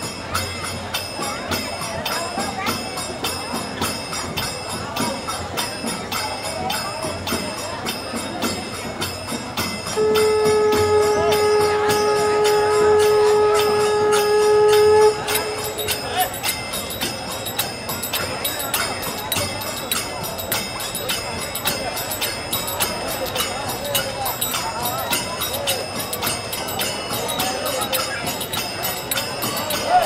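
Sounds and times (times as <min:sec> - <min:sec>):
bells ringing: 0:00.0 - 0:30.0
long steady note: 0:09.9 - 0:17.1.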